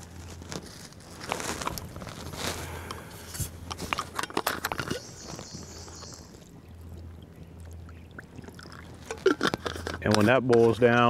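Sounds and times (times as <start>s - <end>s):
metal cup clinking and scraping: 3.3s - 5.4s, 8.6s - 10.8s.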